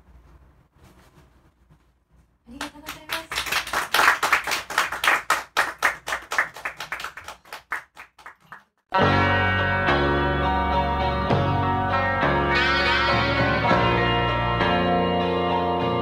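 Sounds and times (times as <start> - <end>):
audience clapping: 2.5 - 8.8.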